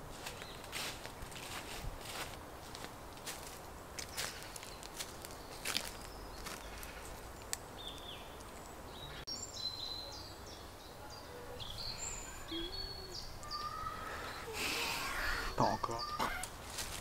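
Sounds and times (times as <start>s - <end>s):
faint outdoor hiss: 0.0s - 17.0s
birds chirping and singing: 7.7s - 16.9s.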